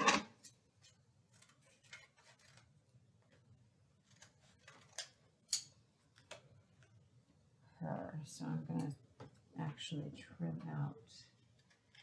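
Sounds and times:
paper rustling on tabletop: 0.8 - 2.9.

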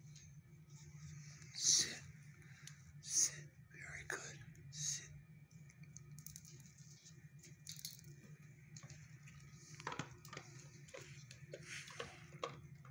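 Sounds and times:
low room hum: 0.0 - 12.9
faint clicks and taps: 8.2 - 12.9.

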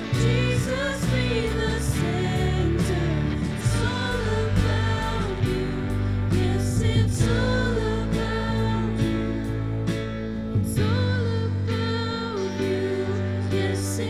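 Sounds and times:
women singing: 0.0 - 14.0.

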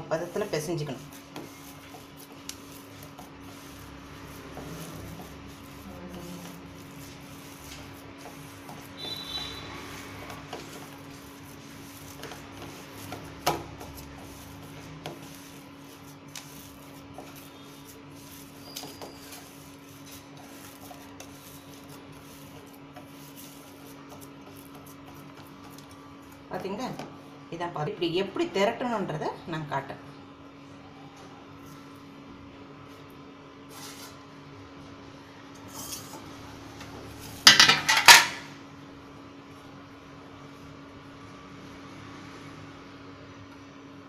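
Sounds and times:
steady low hum: 0.0 - 18.6
hands kneading dough: 0.1 - 27.2.

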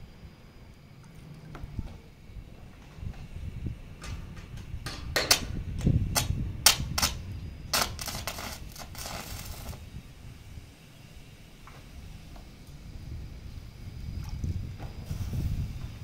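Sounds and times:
arc welding crackle: 4.0 - 14.0.

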